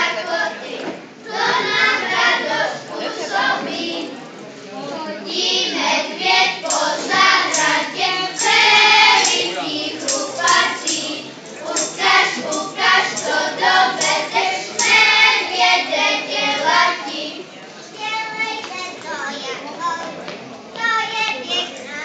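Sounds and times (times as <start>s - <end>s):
children singing together: 0.0s - 4.2s, 5.2s - 17.5s.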